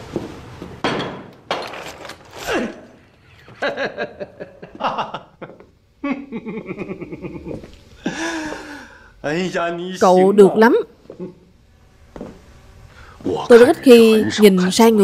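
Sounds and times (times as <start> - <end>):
man laughing heartily: 3.5 - 8.6.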